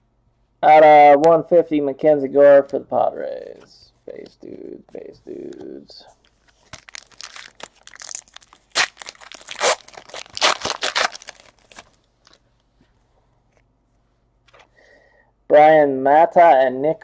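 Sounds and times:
foil wrapper tearing and crinkling: 6.5 - 12.4.

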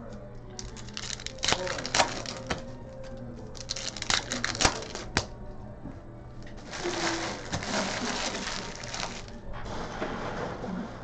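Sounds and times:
pack wrappers crinkling: 0.5 - 5.3, 6.5 - 9.4.

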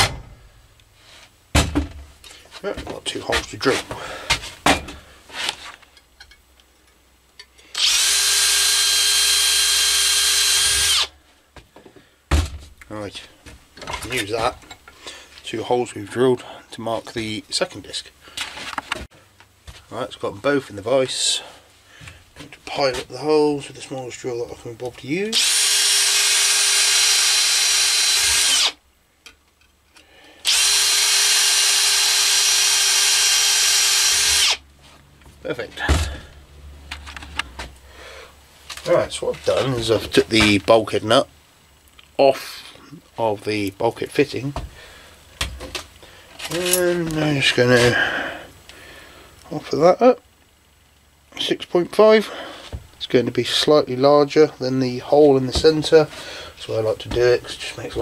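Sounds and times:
cordless drill whining through metal: 7.7 - 11.1, 25.3 - 28.8, 30.4 - 34.6.

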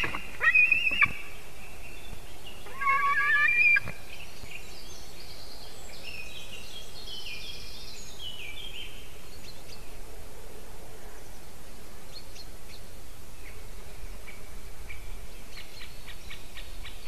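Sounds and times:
eagle calling: 0.0 - 1.4, 2.6 - 4.0.

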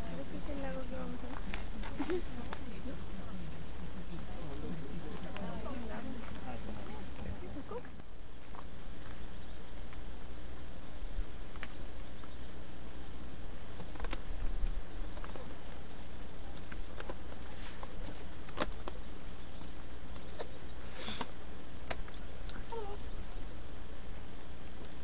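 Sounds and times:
faint ticks and clicks: 0.3 - 7.0, 7.7 - 25.0.

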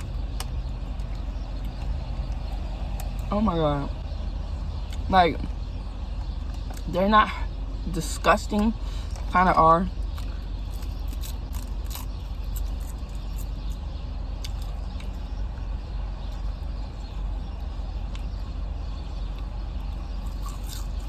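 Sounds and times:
crisp snacks being chewed: 10.1 - 13.8, 14.4 - 15.2, 20.2 - 21.0.

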